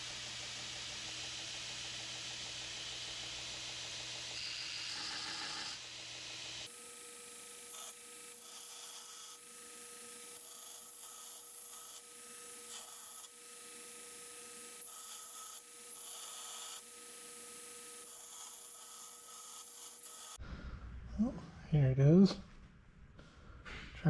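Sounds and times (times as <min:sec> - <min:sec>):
belt grinder rasping hiss: 0:10.3 - 0:14.1, 0:14.7 - 0:16.9, 0:18.0 - 0:20.4
low hum: 0:20.4 - 0:24.0.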